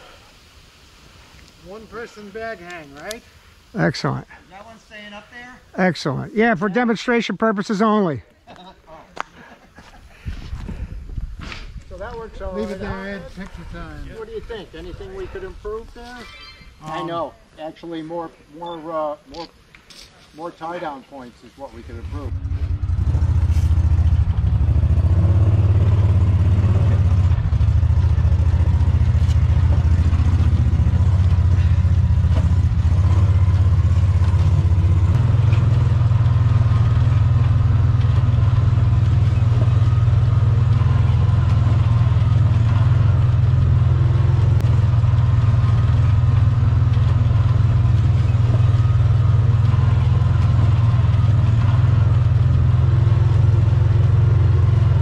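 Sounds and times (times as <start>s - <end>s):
vehicle engine droning: 21.8s - 55.0s.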